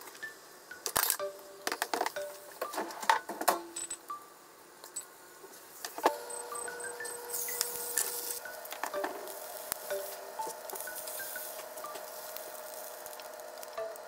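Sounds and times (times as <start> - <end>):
food sizzling in oil: 7.3 - 8.6, 9.2 - 14.0.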